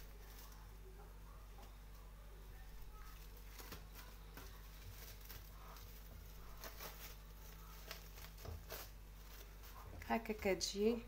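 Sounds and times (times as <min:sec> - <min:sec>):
steady low hum: 0:00.0 - 0:11.0
plastic bag crinkling: 0:02.9 - 0:10.6.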